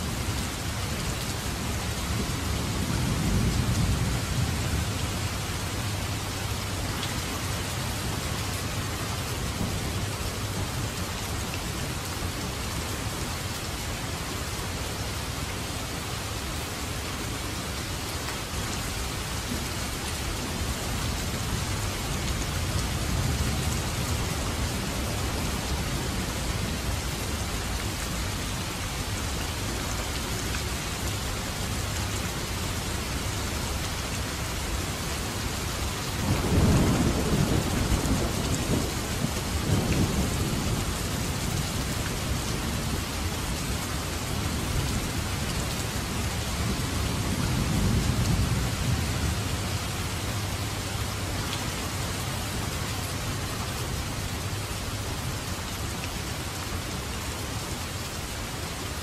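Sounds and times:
rain hissing and pattering: 0.0 - 59.0
thunder rumbling: 36.2 - 41.5.

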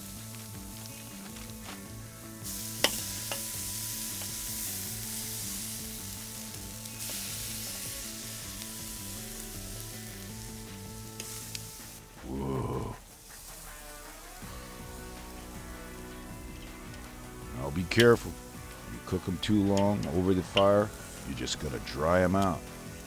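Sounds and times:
background music: 0.0 - 23.0
chicken sizzling on a grill: 0.0 - 23.0
metal tongs clicking on grate: 2.8 - 3.5, 19.7 - 20.8.

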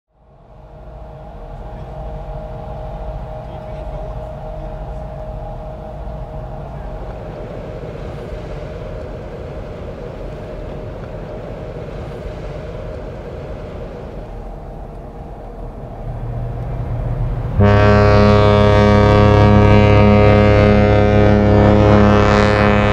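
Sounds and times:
steady low rumble: 0.1 - 22.9
deep ship's horn blast: 0.5 - 7.4, 16.1 - 22.9.

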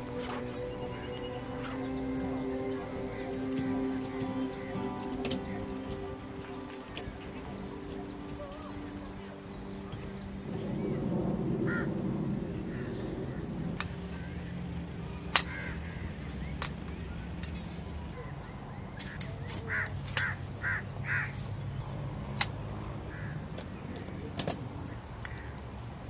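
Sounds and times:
metal tent poles clicking: 0.0 - 9.1, 15.3 - 15.7, 19.0 - 20.4, 22.3 - 22.6, 23.5 - 25.4
bird calls: 0.0 - 24.2.

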